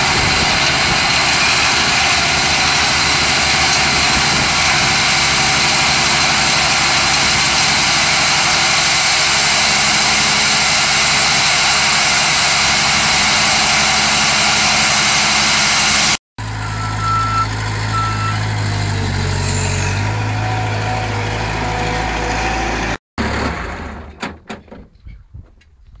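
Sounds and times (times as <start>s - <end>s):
machinery running loudly: 0.0s - 23.8s
engine humming: 0.0s - 24.3s
short high beeps: 16.6s - 18.4s.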